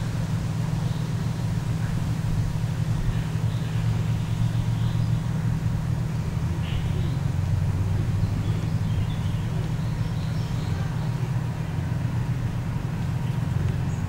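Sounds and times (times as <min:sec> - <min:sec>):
faint bird chirps: 0:06.6 - 0:07.3.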